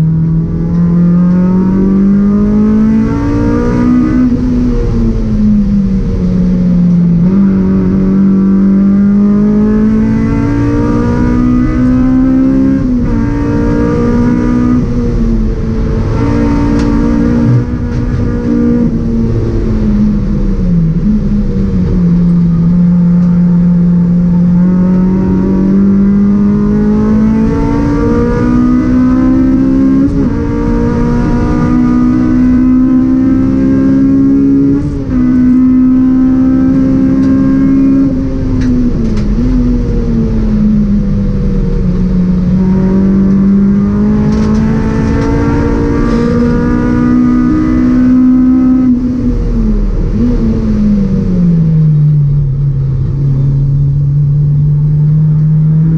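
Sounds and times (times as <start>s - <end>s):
car engine revving at full throttle: 0.0s - 55.9s.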